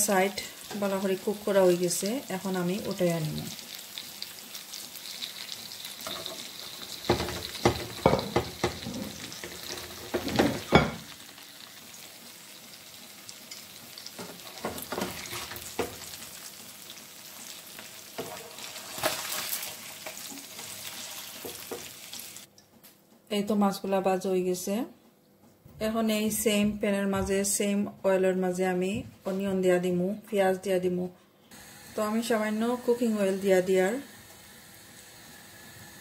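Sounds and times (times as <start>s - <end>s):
fish sizzling in hot oil: 0.1s - 22.5s
spatula scraping and knocking pan: 6.1s - 11.1s, 18.2s - 19.2s.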